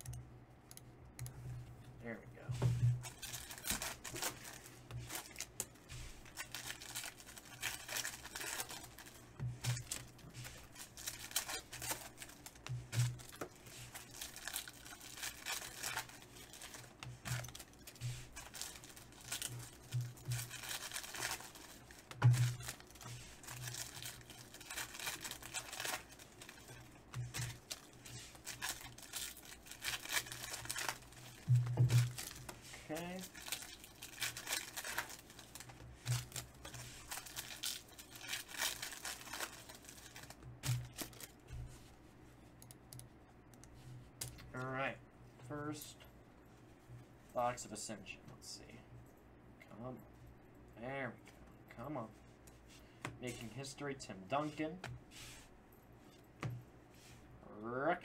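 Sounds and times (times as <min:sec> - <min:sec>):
foil wrappers tearing and crinkling: 0:03.0 - 0:41.4.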